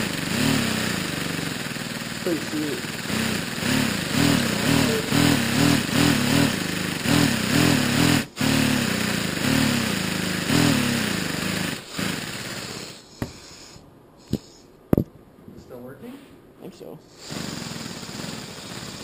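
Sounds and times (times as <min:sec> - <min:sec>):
compressed-air engine running: 0:00.0 - 0:13.4, 0:17.2 - 0:19.0
steady hiss of air: 0:11.9 - 0:14.8.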